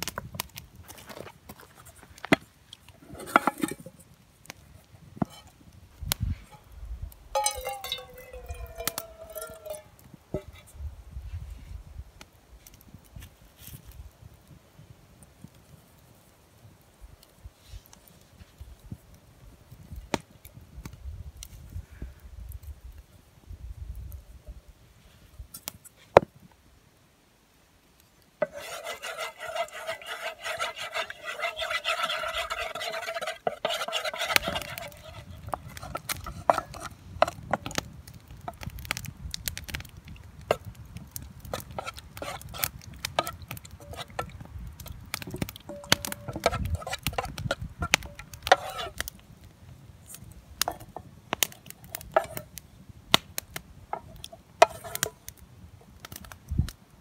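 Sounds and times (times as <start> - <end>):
spoon scraping metal pot: 3.0 - 4.0, 5.2 - 5.5, 7.4 - 10.6, 28.4 - 37.8, 41.5 - 49.0, 52.1 - 52.4, 53.9 - 55.2
spoon tapping metal pot: 7.4 - 9.9, 45.7 - 46.6.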